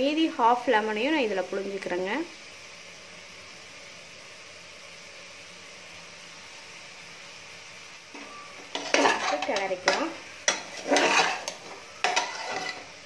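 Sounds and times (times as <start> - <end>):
light sizzle: 0.0 - 13.0
metal spatula scraping pan: 8.1 - 13.0.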